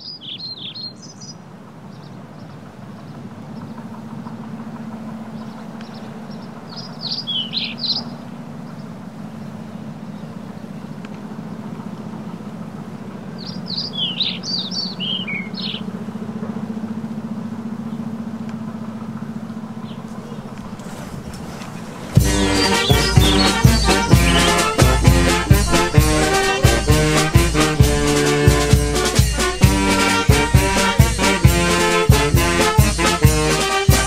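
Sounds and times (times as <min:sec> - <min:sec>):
steady low hum: 0:01.4 - 0:34.0
parrots chirping: 0:19.9 - 0:33.0.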